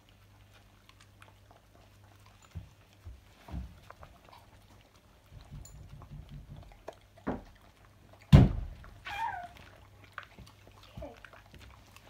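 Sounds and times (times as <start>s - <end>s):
dog chewing: 0.0s - 12.0s
loud thump: 8.3s - 8.7s.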